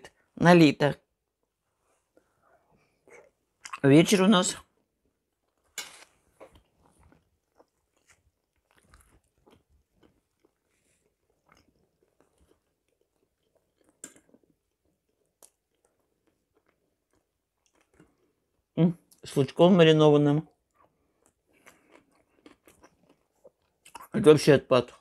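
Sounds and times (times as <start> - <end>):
chewing and mouth smacks: 2.9 - 3.8, 5.5 - 19.2, 20.5 - 24.2.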